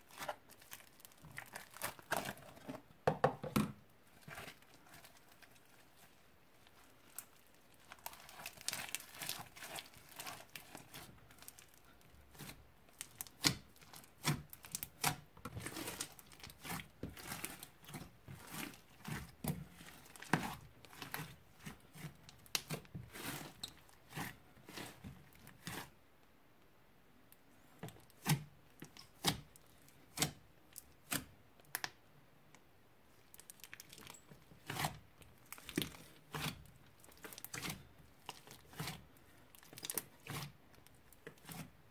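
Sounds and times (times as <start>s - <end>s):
slime crackling and popping: 0.1s - 2.5s, 6.7s - 21.3s.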